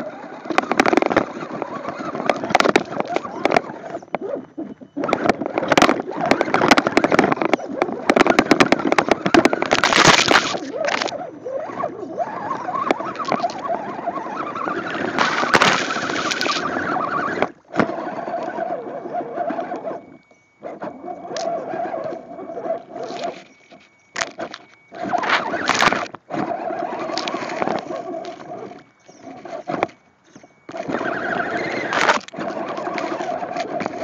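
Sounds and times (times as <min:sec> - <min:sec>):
tyres scraping over rock and grass: 0:00.0 - 0:04.4, 0:05.0 - 0:20.0, 0:21.4 - 0:34.0
electric motor and gear whine: 0:00.0 - 0:34.0.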